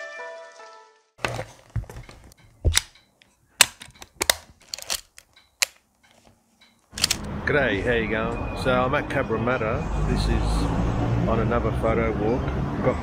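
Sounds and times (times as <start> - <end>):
mechanical camera clicks: 3.6 - 5.8, 6.9 - 7.3.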